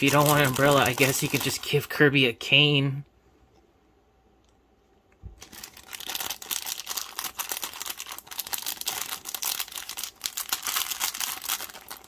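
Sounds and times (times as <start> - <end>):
plastic packaging crinkling: 0.0 - 2.0, 5.3 - 12.0.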